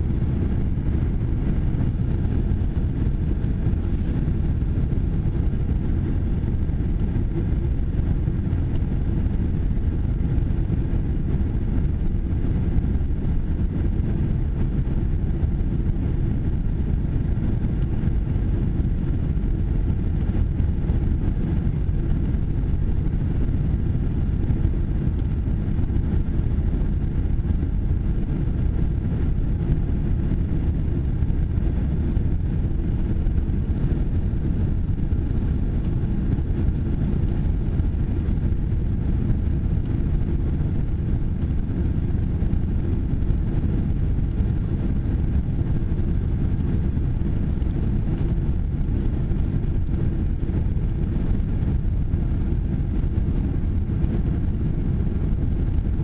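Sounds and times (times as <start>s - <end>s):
airliner cabin rumble: 0.0s - 56.0s.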